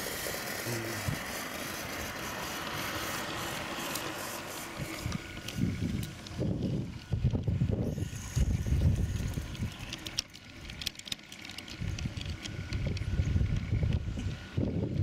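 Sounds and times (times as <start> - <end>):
wheels clicking on rails: 0.0 - 15.0
wind on microphone: 4.8 - 9.9, 11.8 - 15.0.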